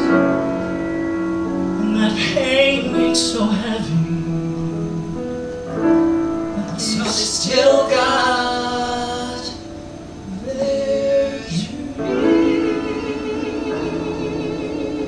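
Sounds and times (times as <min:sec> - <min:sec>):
vocal ensemble singing in harmony: 0:06.6 - 0:15.0.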